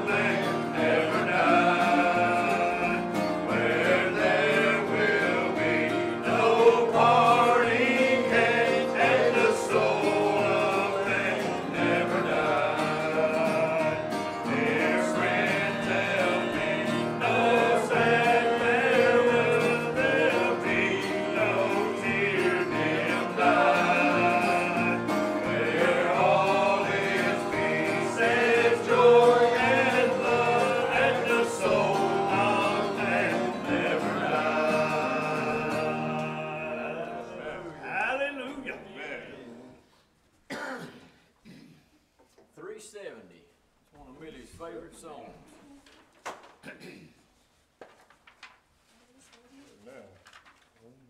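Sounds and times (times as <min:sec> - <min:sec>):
piano: 0:00.0 - 0:39.8
men singing a hymn: 0:00.0 - 0:40.0
acoustic guitar: 0:00.0 - 0:42.2.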